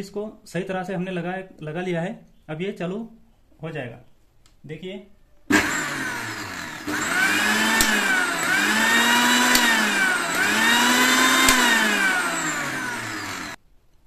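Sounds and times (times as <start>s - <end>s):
mixer grinder motor whining: 5.5s - 13.6s
sharp clicks: 9.5s - 9.8s, 11.4s - 11.8s.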